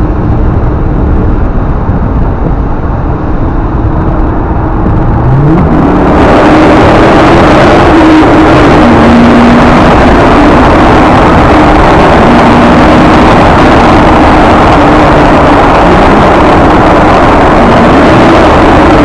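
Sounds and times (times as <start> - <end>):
car engine drone in tunnel: 0.0 - 19.0.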